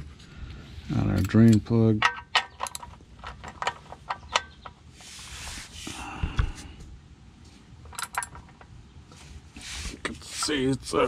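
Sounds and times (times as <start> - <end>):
socket ratchet clicking: 1.2 - 4.7, 7.9 - 8.4
rustle of handling: 4.9 - 6.0, 8.5 - 10.9.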